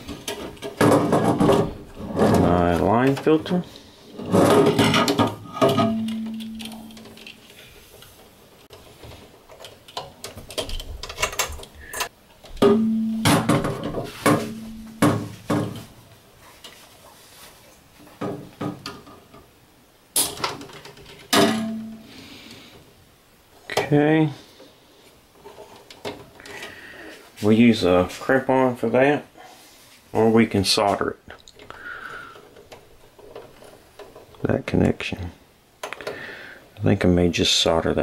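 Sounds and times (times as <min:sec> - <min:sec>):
low steady tone: 0:05.6 - 0:07.3, 0:12.6 - 0:15.3, 0:21.4 - 0:22.1.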